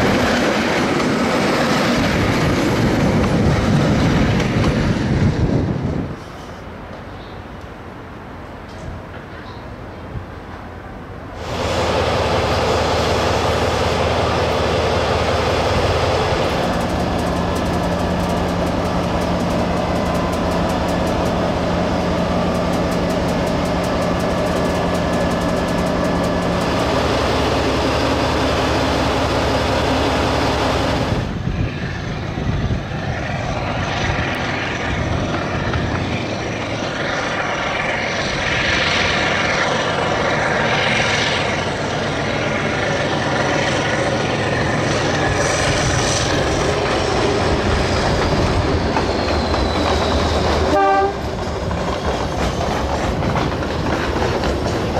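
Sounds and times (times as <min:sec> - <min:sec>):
train passing by: 0:00.0 - 0:54.9
wheels clicking on rails: 0:11.4 - 0:31.2, 0:34.3 - 0:54.9
locomotive engine running: 0:11.4 - 0:54.9.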